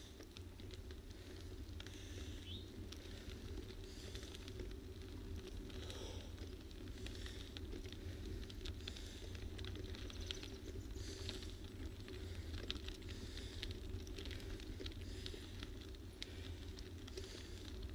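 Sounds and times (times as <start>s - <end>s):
crackling ticks: 0.0s - 17.9s
tyre noise on wet road: 0.0s - 17.9s
wind rumble: 0.0s - 17.9s.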